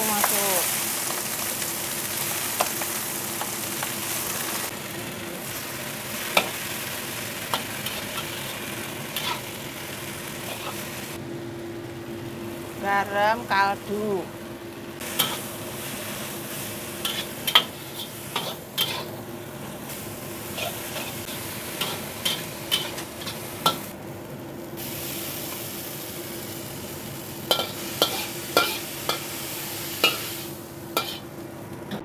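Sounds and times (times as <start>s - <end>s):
food sizzling in a pan: 0.0s - 11.2s, 15.0s - 24.0s, 24.7s - 31.4s
spatula scraping and clacking on pan: 9.2s - 9.5s, 15.2s - 15.5s, 17.0s - 19.2s, 20.5s - 23.9s, 27.5s - 29.4s, 30.0s - 30.3s, 31.0s - 31.2s.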